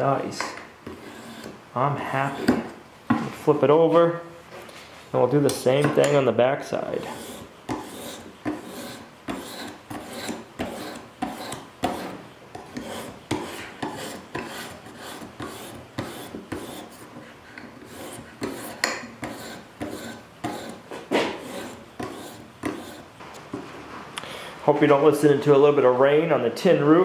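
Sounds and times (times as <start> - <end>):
sharpening stone rasping on knife: 7.0 - 17.1, 17.8 - 20.8, 21.4 - 23.1.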